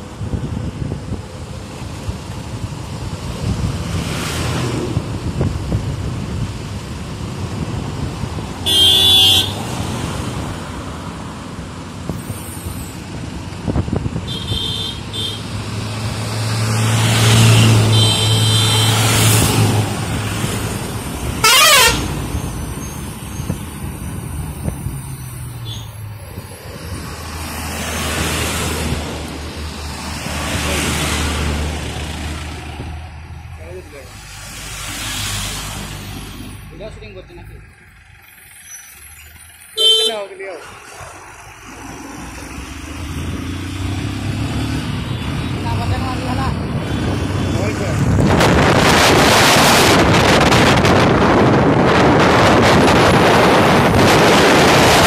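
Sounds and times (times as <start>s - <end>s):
motorbike engine and road noise: 0.0s - 55.0s
vehicle horns honking: 8.6s - 9.7s, 14.2s - 15.5s, 17.8s - 19.3s, 21.4s - 22.2s, 39.7s - 40.4s
warbling horn: 21.4s - 22.2s.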